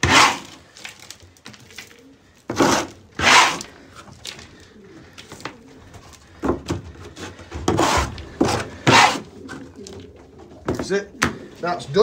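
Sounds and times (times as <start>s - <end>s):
plastic scraper on wooden floor: 0.0s - 0.6s, 2.5s - 3.7s, 7.2s - 9.2s
pigeons cooing: 0.0s - 12.0s.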